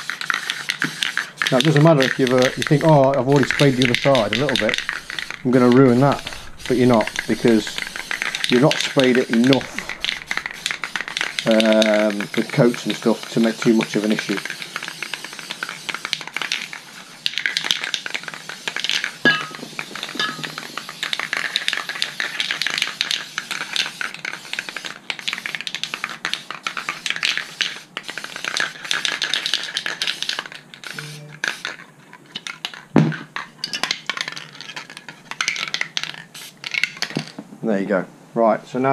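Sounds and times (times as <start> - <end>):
spray paint can hissing: 0.0 - 32.9, 33.8 - 37.1
knock: 33.0 - 33.2.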